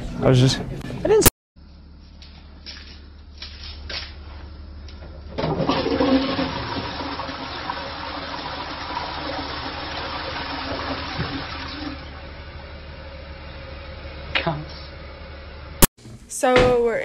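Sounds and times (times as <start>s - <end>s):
toilet flushing: 5.3s - 12.5s.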